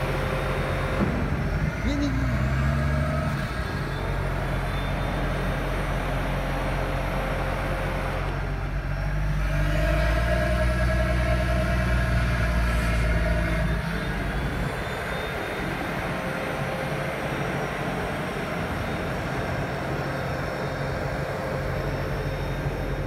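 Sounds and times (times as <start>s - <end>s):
diesel engine running: 0.0s - 23.0s
hydraulic whine: 0.0s - 23.0s.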